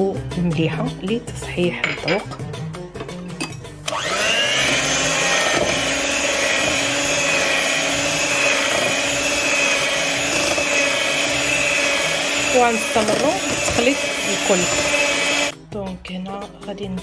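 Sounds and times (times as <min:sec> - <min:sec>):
electric hand mixer whirring: 0:03.8 - 0:15.5.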